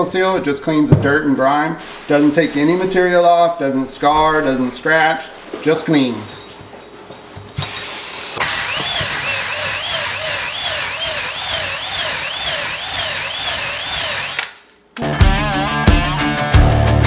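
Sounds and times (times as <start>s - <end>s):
power drill spinning honing brush: 7.6s - 14.5s
rock music: 15.0s - 17.0s.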